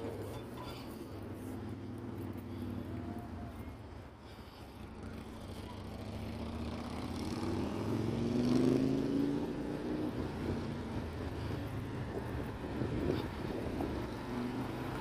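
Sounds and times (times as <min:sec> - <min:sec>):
low traffic rumble: 0:00.0 - 0:15.0
vehicle engine passing: 0:04.9 - 0:15.0.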